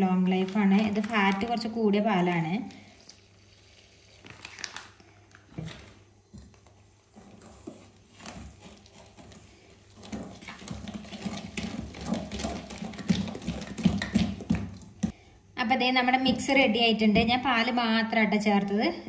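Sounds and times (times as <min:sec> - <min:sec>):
batter knocks and scrapes in bowl: 0:06.3 - 0:15.2.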